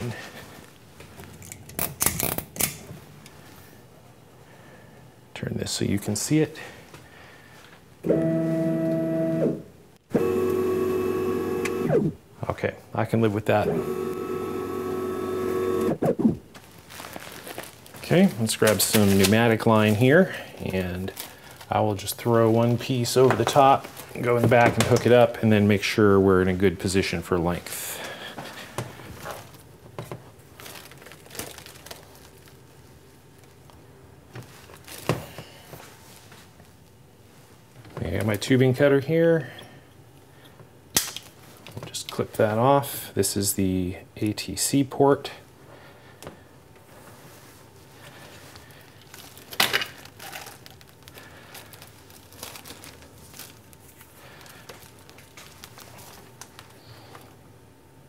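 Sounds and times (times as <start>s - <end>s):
plastic tubing rustling: 16.5s - 25.4s, 28.0s - 38.4s, 46.2s - 57.4s.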